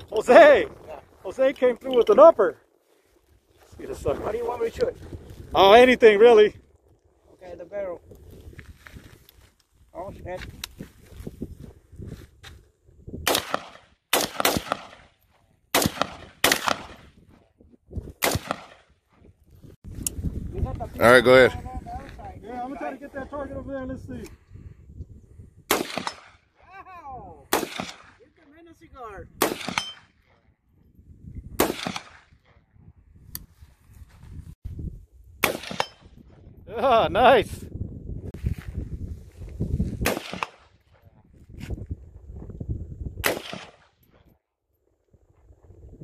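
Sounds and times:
rifle shots with echo: 13.2s - 17.1s, 18.2s - 18.9s, 25.7s - 26.5s, 27.5s - 28.2s, 29.4s - 30.2s, 31.6s - 32.5s, 35.4s - 36.1s, 40.0s - 40.8s, 43.2s - 44.0s.

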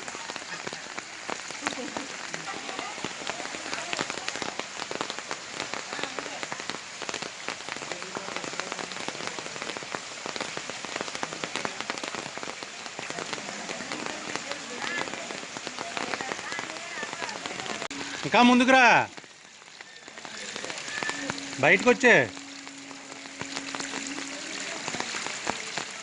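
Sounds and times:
rain on hard surfaces: 0.0s - 26.0s
faint voices: 12.9s - 26.0s.

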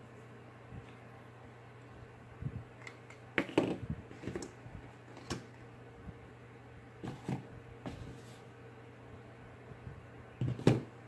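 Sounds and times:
faint steady hum: 0.0s - 11.0s
plastic items knocking on table: 10.4s - 10.9s.

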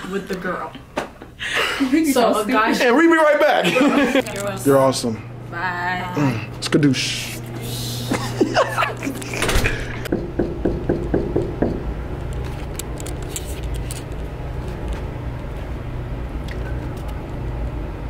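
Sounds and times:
steady low rumble: 10.1s - 18.0s.

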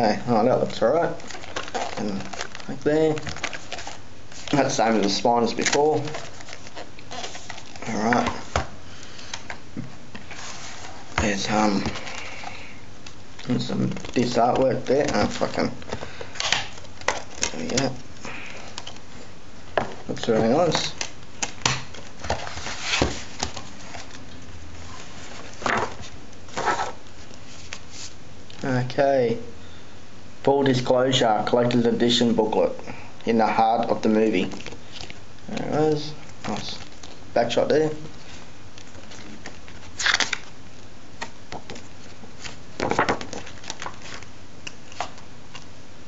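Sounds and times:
plastic case rustling: 0.7s - 12.5s, 13.4s - 28.1s, 34.3s - 37.2s, 41.2s - 45.6s.

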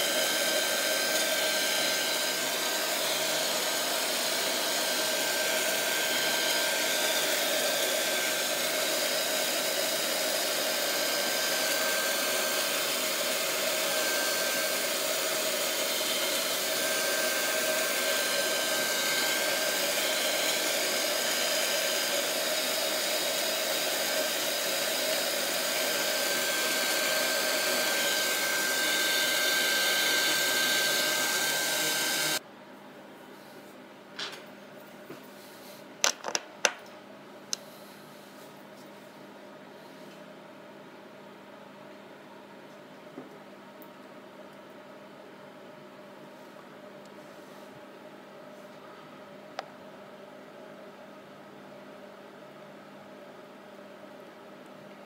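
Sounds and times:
heat gun fan blowing air: 0.0s - 32.4s.

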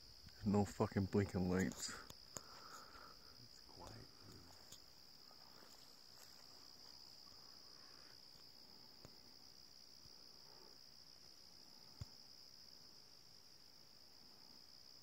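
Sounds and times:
crickets trilling: 0.0s - 15.0s
faint clicks: 1.6s - 4.9s.

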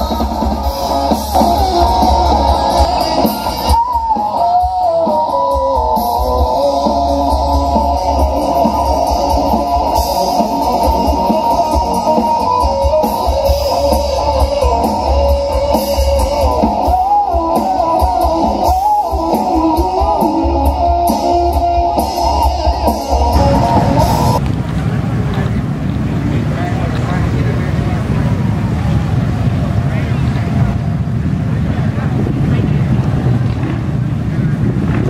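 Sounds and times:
drum kit: 0.0s - 24.7s
electric guitar lead: 0.0s - 26.1s
bass guitar: 0.0s - 30.8s.

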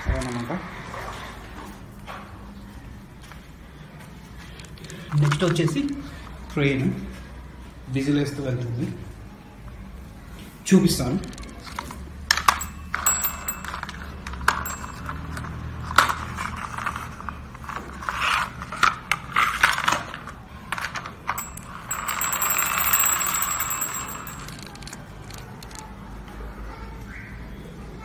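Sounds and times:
toy motor hum: 21.4s - 25.8s.

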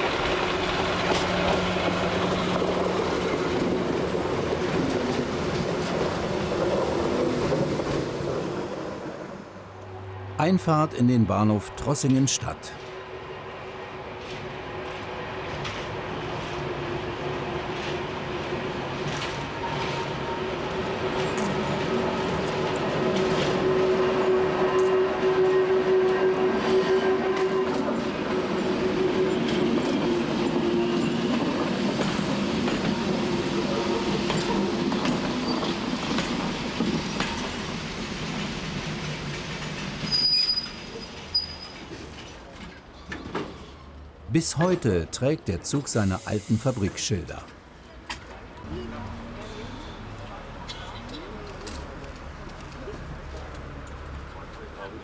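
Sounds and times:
electric railcar hum: 0.0s - 10.6s, 11.5s - 44.3s, 46.5s - 55.0s
high squeal: 40.0s - 41.9s.

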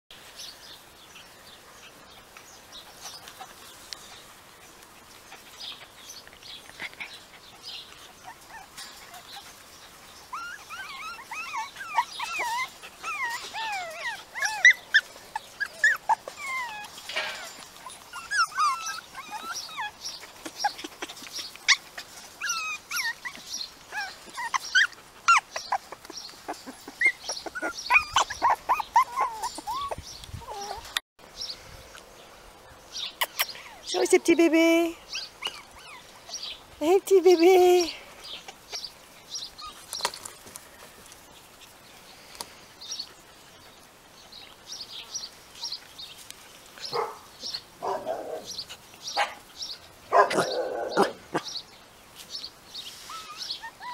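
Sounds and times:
puppies whimpering and yipping: 5.3s - 31.0s, 35.1s - 36.6s, 38.3s - 40.0s, 52.9s - 53.9s.

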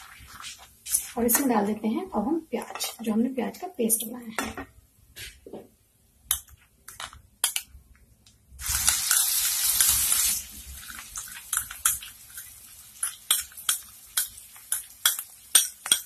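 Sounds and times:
paste sizzling in hot oil: 8.6s - 16.0s
utensils tapping jar and pan: 11.2s - 16.0s.

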